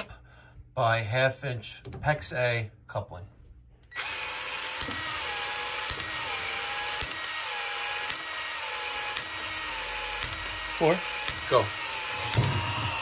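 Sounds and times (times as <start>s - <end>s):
power tool running: 3.9s - 13.0s
tool head clicking: 5.7s - 7.3s.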